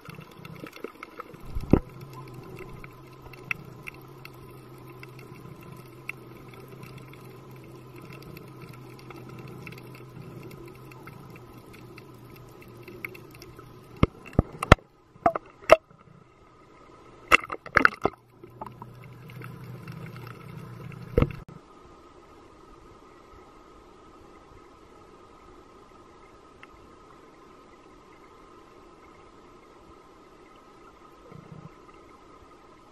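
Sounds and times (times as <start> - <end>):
steady low underwater hum: 0.0 - 32.9.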